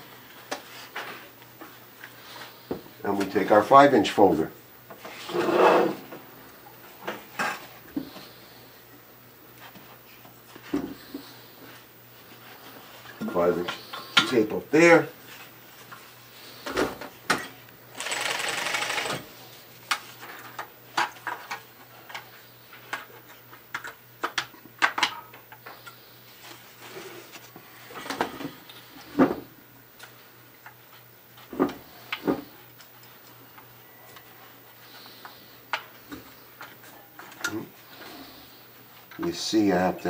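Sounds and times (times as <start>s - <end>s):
sewing machine running: 17.9s - 19.3s.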